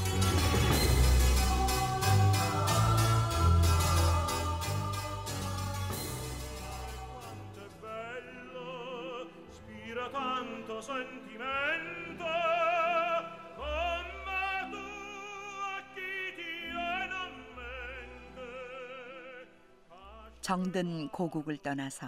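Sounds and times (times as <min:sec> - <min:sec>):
instrumental accompaniment: 0:00.0 - 0:08.2
soprano singing opera: 0:00.9 - 0:21.7.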